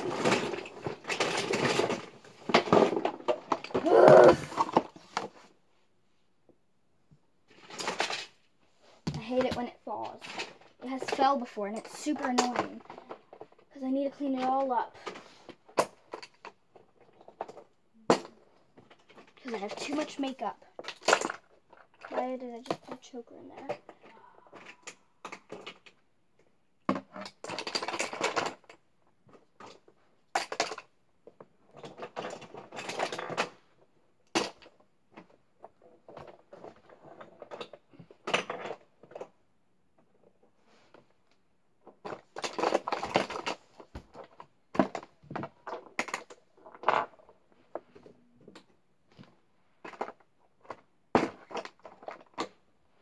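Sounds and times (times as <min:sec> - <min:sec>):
makeup items clattering: 0:41.8 - 0:48.0.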